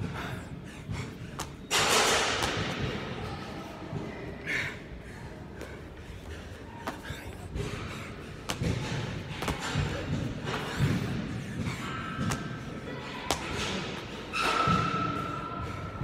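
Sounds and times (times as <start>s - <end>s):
feet landing from jumps: 0.9s - 3.1s, 5.6s - 12.6s.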